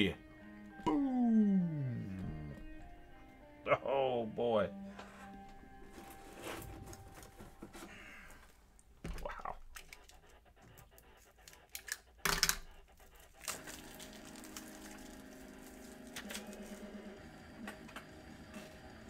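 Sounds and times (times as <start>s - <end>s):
foil pack crinkling: 11.3s - 16.9s
foil ripping: 13.3s - 16.8s.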